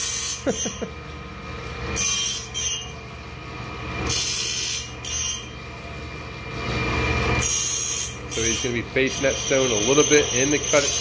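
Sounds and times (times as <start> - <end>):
grinding wheel hissing on blade: 0.0 - 0.9, 1.9 - 3.1, 4.0 - 5.6, 7.3 - 11.0
motor hum: 0.0 - 11.0.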